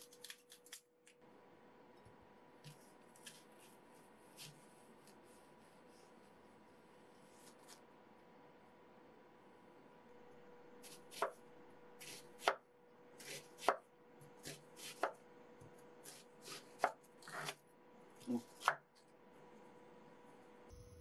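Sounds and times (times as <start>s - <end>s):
knife slicing onion on board: 10.8s - 11.4s, 12.0s - 12.6s, 13.2s - 17.6s, 18.3s - 18.9s.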